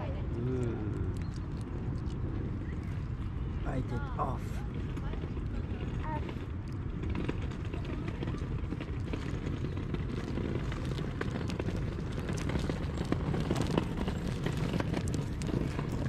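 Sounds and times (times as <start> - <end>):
small crackles: 0.0 - 4.0, 4.7 - 16.0
wind buffeting microphone: 0.0 - 16.0.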